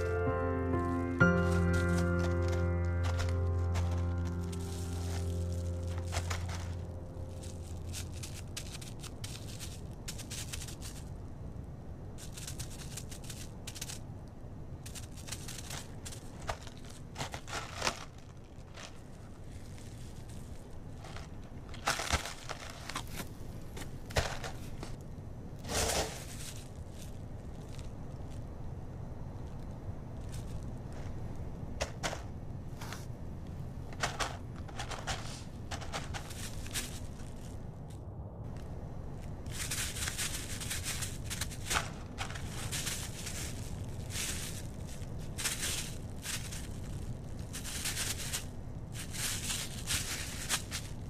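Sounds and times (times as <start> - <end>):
low hum: 0.0 - 10.1
feet crunching over snow and leaves: 0.0 - 11.1, 14.8 - 25.0, 25.6 - 28.4, 30.1 - 31.2, 34.0 - 51.0.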